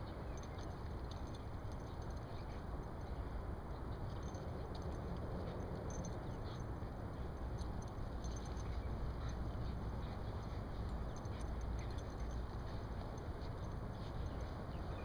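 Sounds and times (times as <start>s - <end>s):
dogs scuffling on grass: 3.9s - 15.0s.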